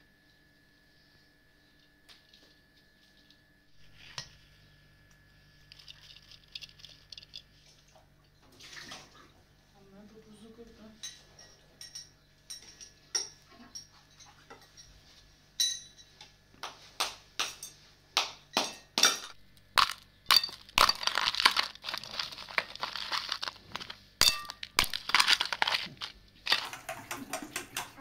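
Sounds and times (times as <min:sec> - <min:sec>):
spoon breaking ice in metal bowl: 0:18.6 - 0:27.9
ice crunching and crackling: 0:19.7 - 0:26.9.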